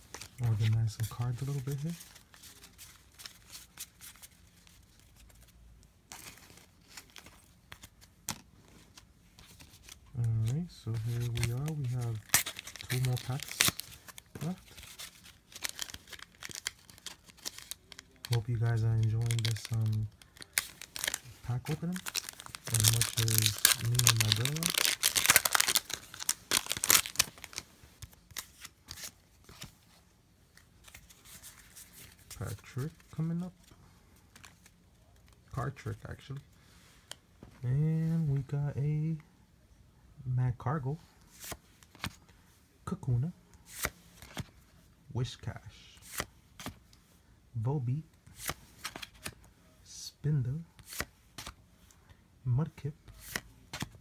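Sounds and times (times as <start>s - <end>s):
cards clicking and rustling: 0.0s - 4.4s, 6.1s - 29.8s, 30.5s - 33.4s, 43.7s - 44.6s, 46.0s - 47.0s, 48.3s - 49.5s, 50.8s - 52.0s, 53.0s - 54.0s
foil wrapper crinkling: 11.2s - 27.6s.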